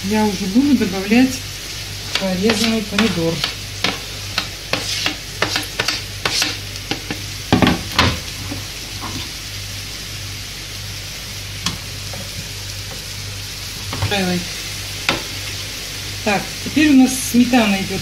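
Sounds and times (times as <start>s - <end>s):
vegetables sizzling in a pan: 0.0s - 18.0s
metal spoon scraping and tapping: 2.5s - 7.1s.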